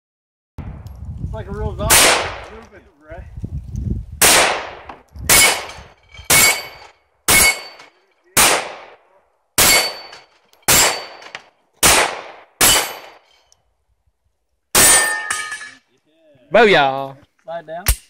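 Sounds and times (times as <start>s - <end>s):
pistol shots: 1.9s - 2.5s, 4.2s - 5.7s, 8.4s - 9.0s, 9.6s - 13.2s
steel plate target clanging: 5.3s - 8.0s, 9.6s - 11.4s, 12.6s - 13.5s, 14.8s - 15.8s.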